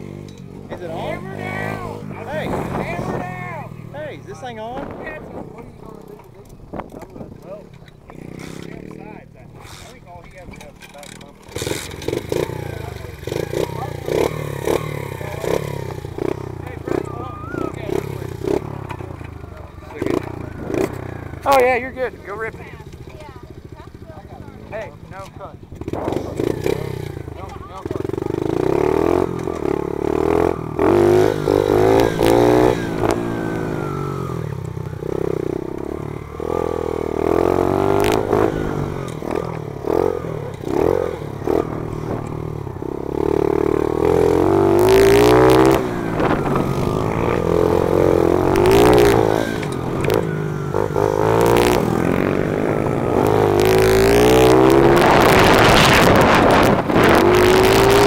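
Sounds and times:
motorbike engine revving: 0:00.0 - 0:58.0
wind rushing over microphone: 0:01.7 - 0:03.8, 0:04.4 - 0:07.7, 0:43.8 - 0:58.0.

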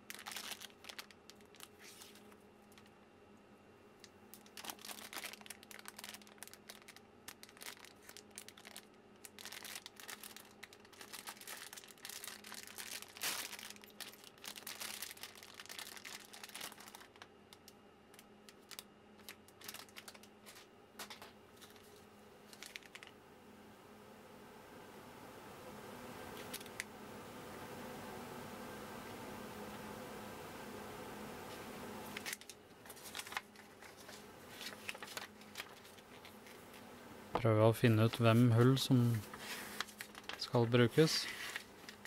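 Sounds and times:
plastic packaging crinkling: 0:00.0 - 0:03.0, 0:04.0 - 0:23.2, 0:26.4 - 0:26.9, 0:32.1 - 0:36.9, 0:37.8 - 0:42.0.

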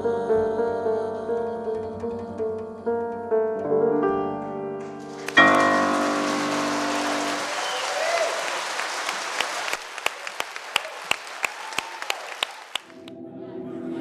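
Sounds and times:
music: 0:00.0 - 0:07.9, 0:12.9 - 0:14.0
audience applauding: 0:04.9 - 0:13.1
sharp individual claps: 0:05.0 - 0:13.1.

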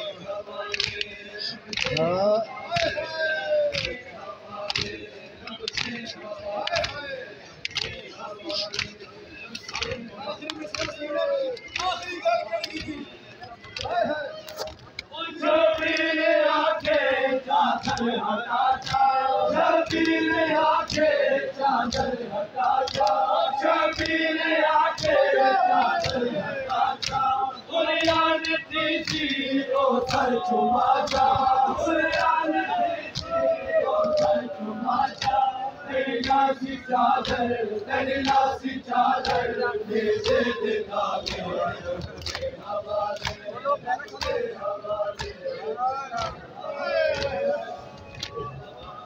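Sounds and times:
crowd of men chanting: 0:00.0 - 0:49.0.

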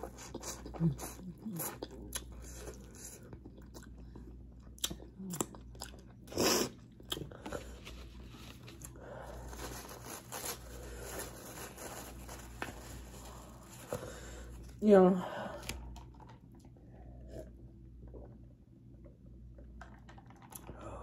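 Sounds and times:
person chewing food: 0:00.0 - 0:09.0.

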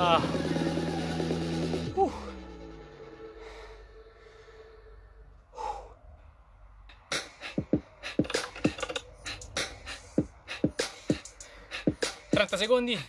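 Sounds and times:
electronic dance beat: 0:00.0 - 0:02.7, 0:07.1 - 0:12.9
short breath: 0:03.3 - 0:06.2.

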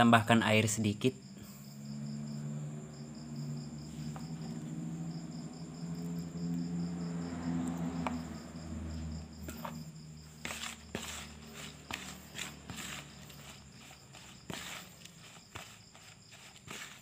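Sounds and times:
cricket chirping: 0:00.0 - 0:17.0
low steady hum: 0:01.2 - 0:15.1
spoon scraping plastic bowl: 0:09.4 - 0:17.0.

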